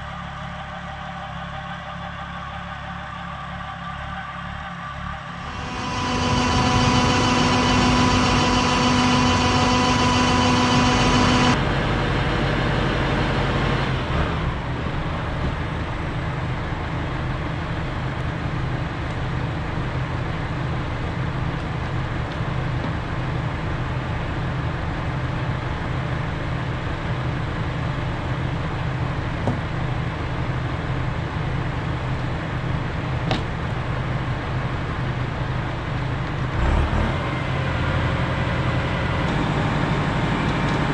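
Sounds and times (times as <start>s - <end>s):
high multi-tone whine: 0.0s - 11.6s.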